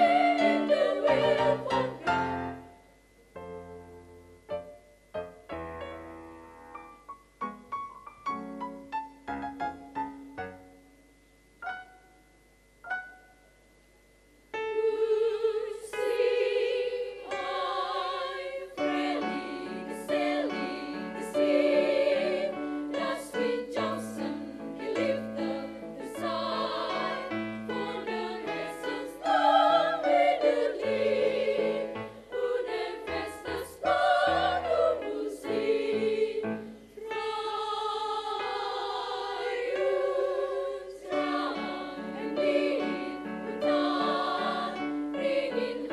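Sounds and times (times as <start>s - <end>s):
choir of women singing: 0.0s - 2.7s, 14.6s - 45.9s
piano notes: 1.6s - 13.8s.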